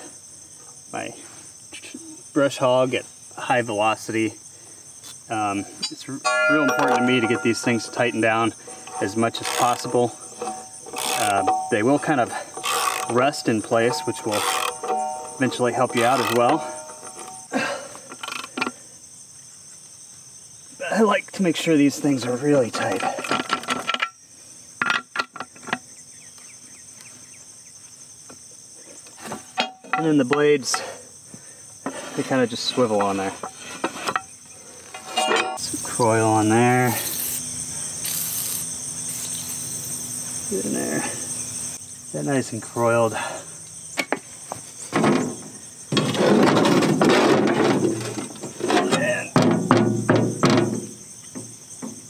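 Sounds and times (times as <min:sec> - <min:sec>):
crickets chirring: 0:00.0 - 0:52.0
metal scraping on metal: 0:05.8 - 0:17.5, 0:31.8 - 0:35.7
sharp metal clanks and knocks: 0:05.8 - 0:17.5, 0:22.7 - 0:24.2, 0:29.2 - 0:31.0, 0:32.6 - 0:35.7, 0:44.8 - 0:52.0
metal clinks of tools: 0:05.8 - 0:17.6, 0:34.9 - 0:35.7.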